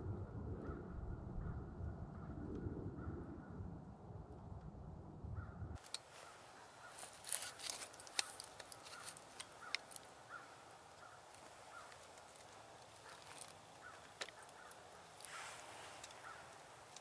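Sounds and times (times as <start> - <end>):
sharp ticks and crackles: 6.9 - 17.0.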